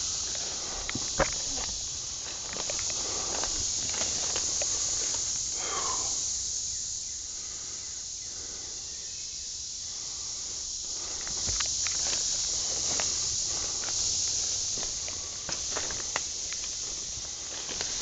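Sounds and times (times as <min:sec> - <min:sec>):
footsteps through rustling undergrowth: 0:00.0 - 0:05.5, 0:10.9 - 0:18.0
steady high hiss: 0:00.0 - 0:18.0.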